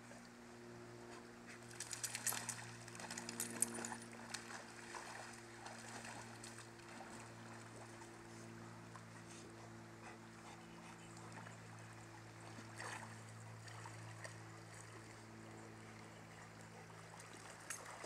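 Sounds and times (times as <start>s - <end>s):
steady low hum: 0.0s - 18.0s
dogs splashing in water: 1.6s - 8.1s, 11.0s - 18.0s.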